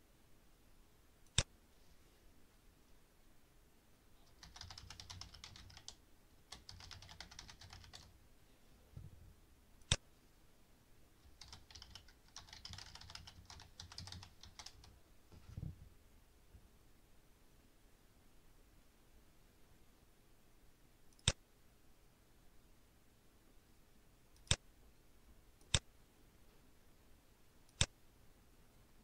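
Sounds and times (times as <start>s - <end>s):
typing on a computer keyboard: 4.2s - 8.1s, 11.2s - 15.0s
sharp click: 24.4s - 24.6s.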